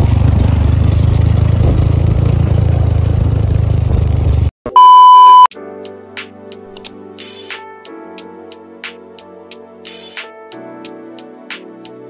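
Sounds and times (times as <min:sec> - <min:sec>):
motorcycle engine running: 0:00.0 - 0:04.5
loud steady beep: 0:04.7 - 0:05.5
music: 0:05.5 - 0:12.0.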